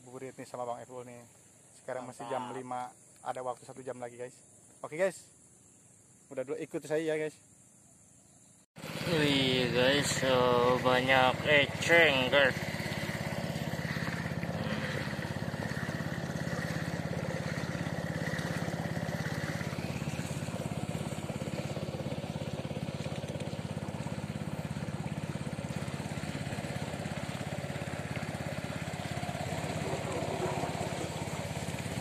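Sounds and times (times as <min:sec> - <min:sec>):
boat engine put-put: 0:08.8 - 0:32.0.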